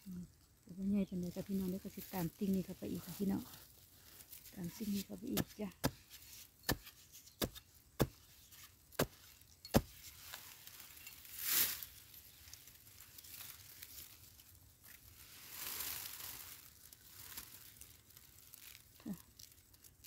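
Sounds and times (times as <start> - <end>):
scraping soil and dry leaves: 0.1 - 20.0
tool striking hard earth: 4.9 - 10.3.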